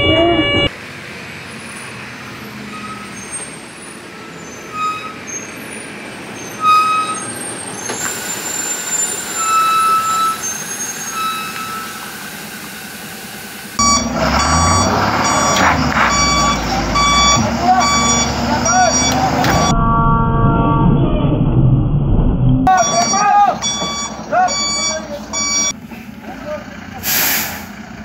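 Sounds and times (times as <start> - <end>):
louder truck engine: 0.0 - 19.7, 22.1 - 28.0
truck engine running: 5.5 - 19.7, 22.7 - 28.0
reverse alarm beeping: 6.6 - 7.2, 8.3 - 12.0, 13.8 - 20.9, 22.7 - 25.8.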